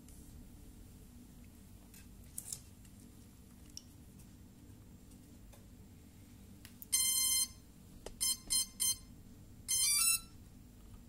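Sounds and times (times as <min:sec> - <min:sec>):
drone startup beeps: 0:07.0 - 0:07.6, 0:08.2 - 0:09.1, 0:09.7 - 0:10.4.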